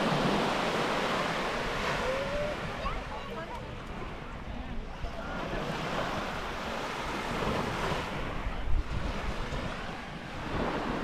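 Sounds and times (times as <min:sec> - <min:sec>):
small waves washing onto sand: 0:00.0 - 0:11.0
wind rumbling on microphone: 0:00.0 - 0:11.0.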